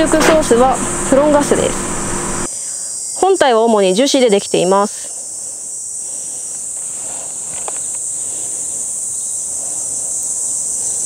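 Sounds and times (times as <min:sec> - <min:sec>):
high-pitched hiss: 0:00.0 - 0:11.0.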